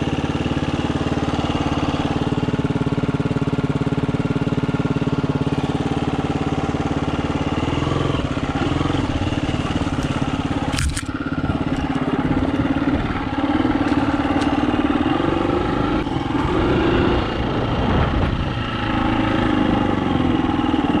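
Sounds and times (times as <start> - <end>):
dirt bike engine revving: 4.8 - 21.0.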